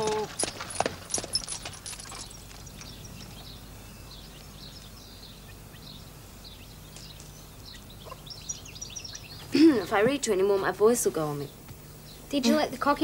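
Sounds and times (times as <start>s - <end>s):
hoof and harness clicks: 0.0s - 3.5s
small birds chirping: 0.0s - 13.0s.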